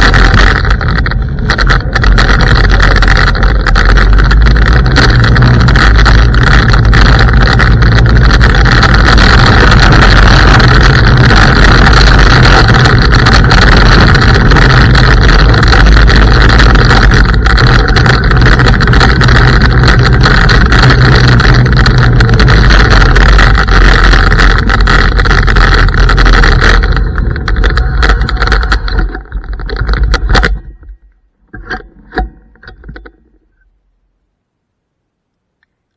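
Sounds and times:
scooter riding on gravel: 0:00.0 - 0:33.6
faint clicks: 0:35.3 - 0:35.9.

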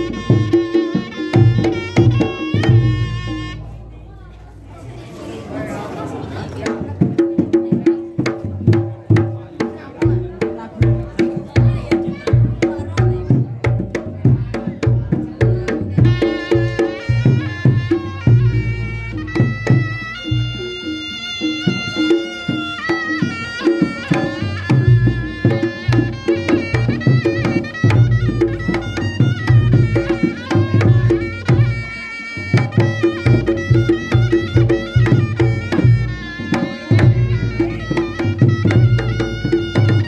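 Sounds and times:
hand drums: 0:00.0 - 0:04.1, 0:06.5 - 0:40.0
shrill reed shawm melody: 0:00.0 - 0:04.3, 0:14.6 - 0:40.0.

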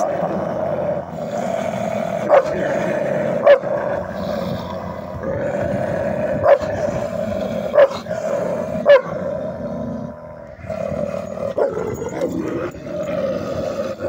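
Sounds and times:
dogs growling: 0:00.0 - 0:14.0
dog barking: 0:02.2 - 0:02.5, 0:03.4 - 0:03.8, 0:06.4 - 0:06.7, 0:07.7 - 0:08.1, 0:08.8 - 0:09.2.

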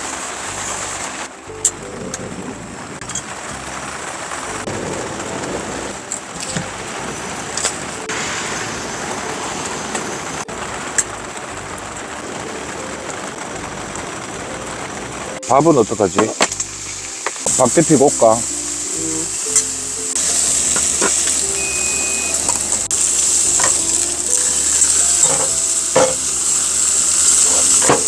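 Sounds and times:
rain on a tarp: 0:00.0 - 0:28.0
gas stove hissing: 0:15.4 - 0:28.0.

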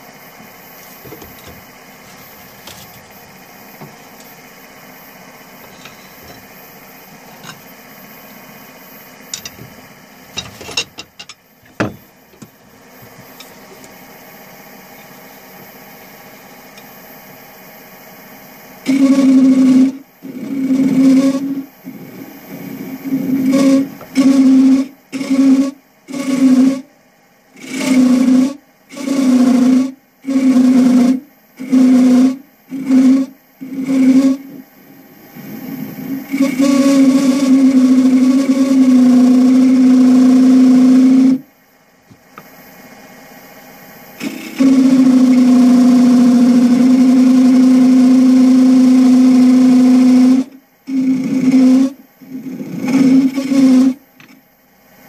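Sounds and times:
lathe tool cutting wood: 0:18.9 - 0:26.8, 0:27.6 - 0:34.6, 0:35.3 - 0:41.4, 0:44.2 - 0:54.0.

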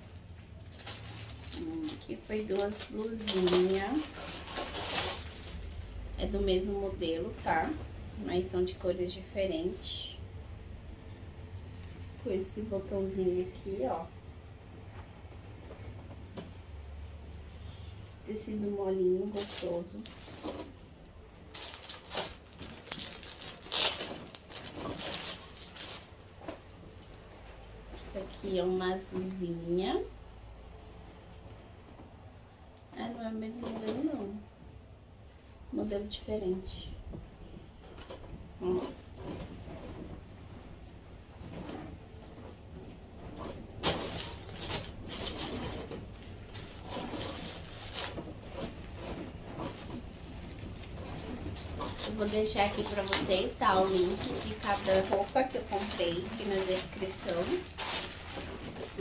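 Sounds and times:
plastic packaging crinkling: 0:00.0 - 0:06.2, 0:19.3 - 0:26.6, 0:43.1 - 0:59.0.

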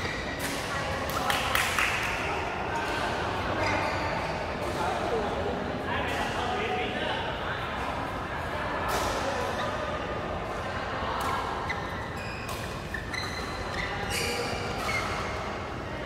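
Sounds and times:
shoes squeaking on floor: 0:03.5 - 0:04.4, 0:11.6 - 0:15.5.

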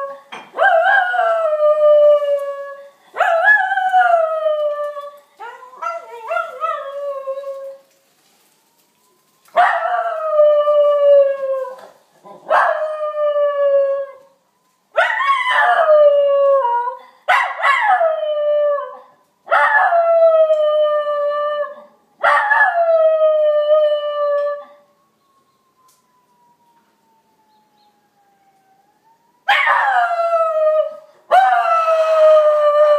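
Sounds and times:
fire truck siren: 0:03.9 - 0:12.0, 0:13.0 - 0:15.0, 0:20.0 - 0:32.9.

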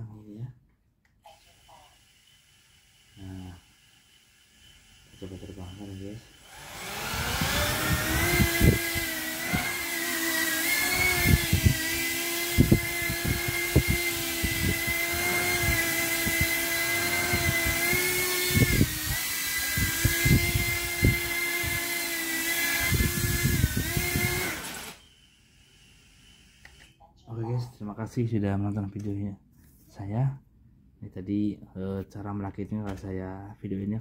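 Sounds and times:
drone motors whining: 0:04.0 - 0:27.0.

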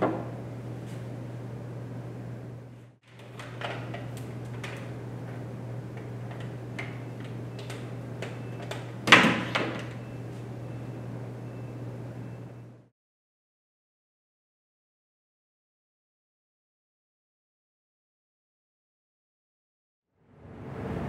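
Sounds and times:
steady low hum: 0:00.0 - 0:12.9.

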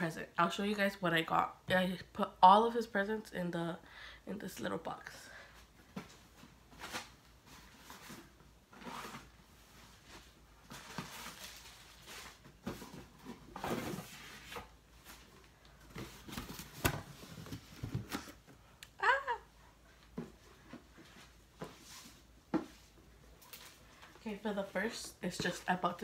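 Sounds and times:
packaging crinkling and rustling: 0:10.2 - 0:14.2.

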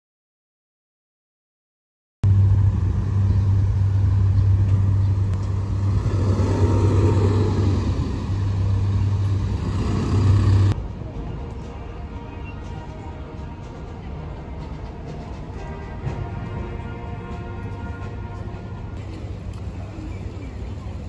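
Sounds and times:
vehicle passing: 0:02.2 - 0:10.8
road traffic hum: 0:02.2 - 0:21.0.

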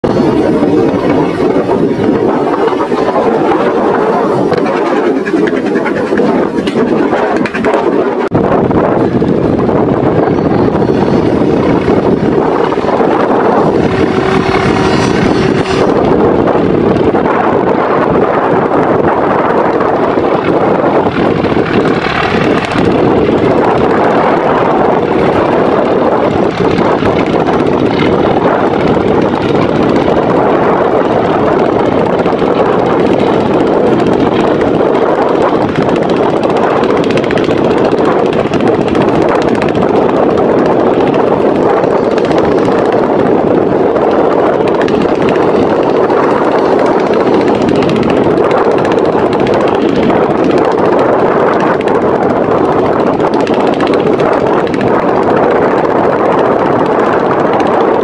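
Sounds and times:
boat engine drone: 0:00.0 - 0:58.0
strong wind rushing: 0:00.0 - 0:58.0.

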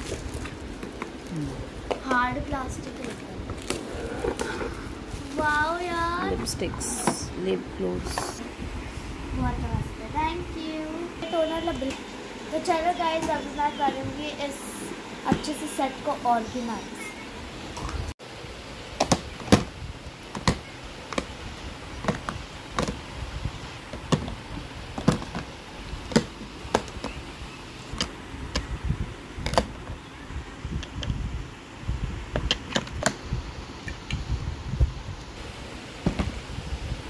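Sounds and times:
handling rustle: 0:00.0 - 0:01.6.

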